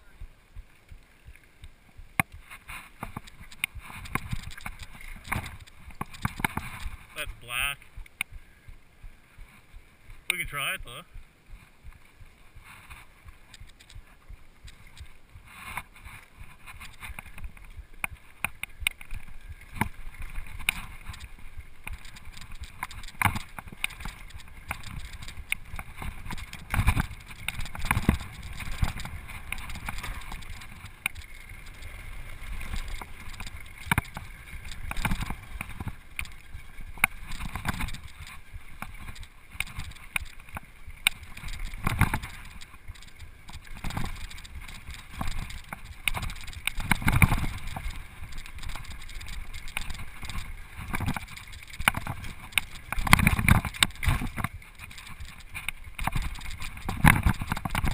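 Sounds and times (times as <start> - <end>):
bike tyres rolling on gravel: 0.9 - 8.0, 8.7 - 57.9
bike chain and frame rattling: 3.0 - 7.2, 16.0 - 57.9.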